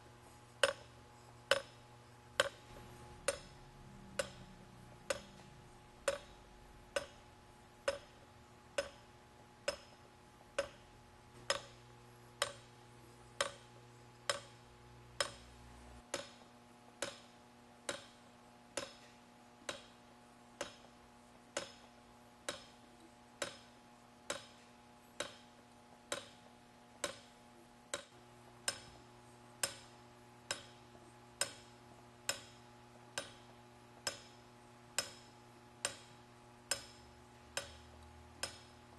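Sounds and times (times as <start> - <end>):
faint motor hum: 0.0 - 38.9
geared mechanism ticking: 0.6 - 1.8, 2.4 - 2.6, 3.2 - 10.8, 11.4 - 11.8, 12.4 - 12.7, 13.4 - 14.6, 15.2 - 16.4, 17.0 - 17.3, 20.6 - 21.0, 22.5 - 24.6, 26.1 - 26.4, 27.9 - 29.0, 31.4 - 38.8.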